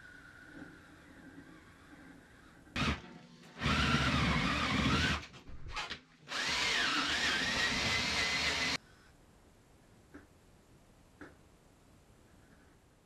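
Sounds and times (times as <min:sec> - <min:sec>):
cordless drill boring into wood: 0:02.8 - 0:03.0, 0:03.6 - 0:05.3, 0:06.3 - 0:08.8.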